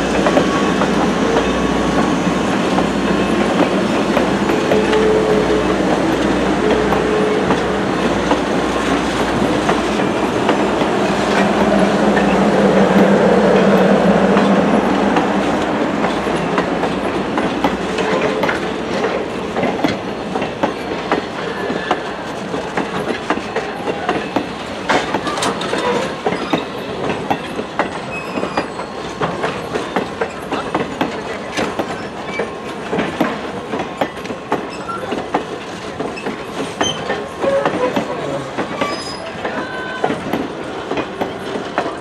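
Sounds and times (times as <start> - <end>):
train wheels clacking over rail joints: 0.0 - 42.0
high squeaks from train wheels: 25.1 - 27.0, 27.9 - 30.6, 31.8 - 32.6, 34.0 - 35.3, 36.0 - 40.3.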